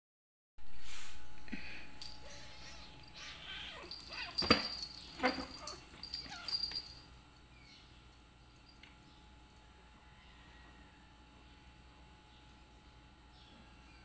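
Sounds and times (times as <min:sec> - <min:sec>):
collar bell jingling: 0:01.9 - 0:07.2.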